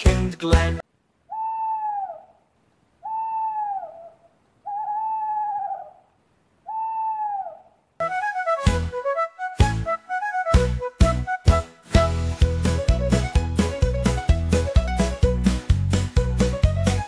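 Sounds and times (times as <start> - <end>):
owl hooting: 1.2 - 7.8.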